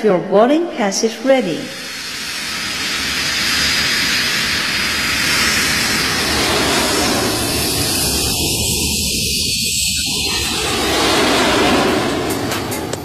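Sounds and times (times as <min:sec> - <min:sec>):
jet engine rushing noise: 0:01.2 - 0:13.0.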